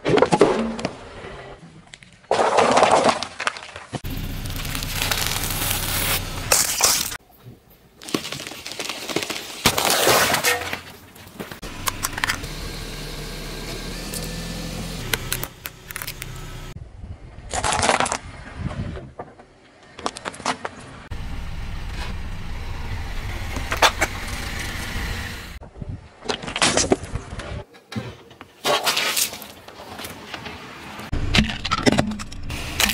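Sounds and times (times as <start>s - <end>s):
car tyre crushing brittle objects: 2.3s - 7.2s, 8.0s - 16.8s.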